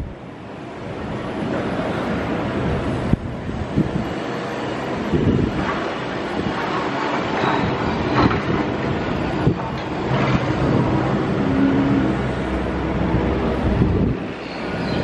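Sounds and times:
passing vehicle rumble: 0:08.1 - 0:15.0.

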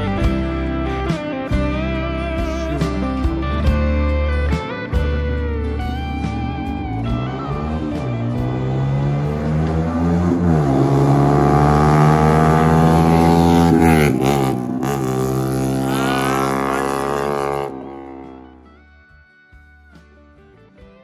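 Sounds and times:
motorcycle accelerating past: 0:05.5 - 0:18.8.

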